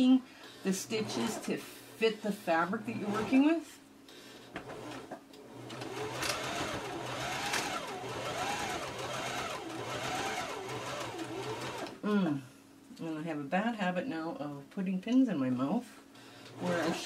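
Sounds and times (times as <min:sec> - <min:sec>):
electric sewing machine stitching: 0:00.8 - 0:01.5, 0:03.0 - 0:03.5, 0:04.6 - 0:12.0, 0:16.5 - 0:17.0.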